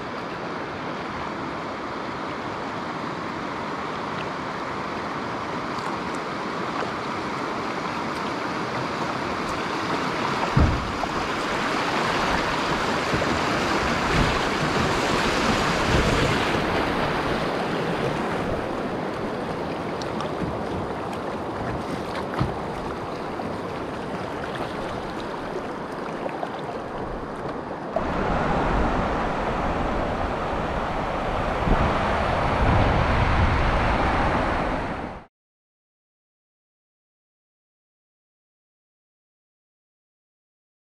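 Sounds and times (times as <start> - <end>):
river rapid rushing and splashing: 0.0 - 35.3
kayak dull knocks: 9.4 - 17.4, 18.0 - 27.6.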